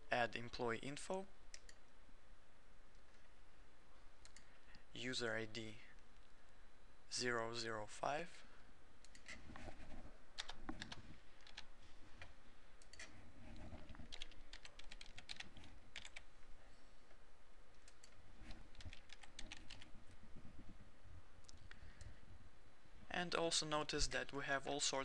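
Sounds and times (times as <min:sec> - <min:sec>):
computer keyboard typing: 0:10.4 - 0:13.1, 0:13.7 - 0:16.3, 0:17.8 - 0:19.9.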